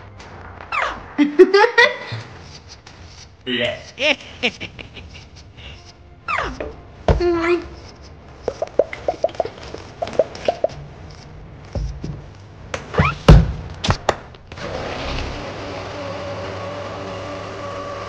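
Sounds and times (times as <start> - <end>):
small blender motor running: 14.6 - 18.0.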